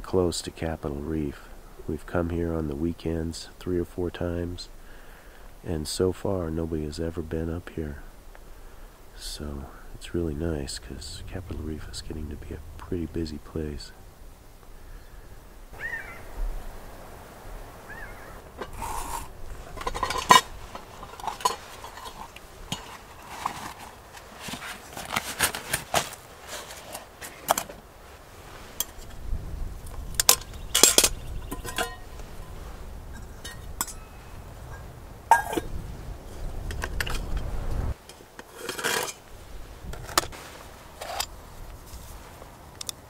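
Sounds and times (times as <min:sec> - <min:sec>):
metal cookware clinking: 0:18.6 - 0:23.8, 0:30.2 - 0:32.2, 0:33.1 - 0:35.7.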